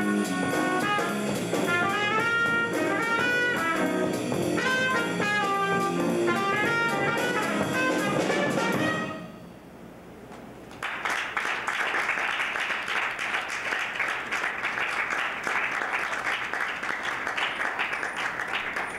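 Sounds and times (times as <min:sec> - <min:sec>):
audience applauding: 0:10.7 - 0:18.9.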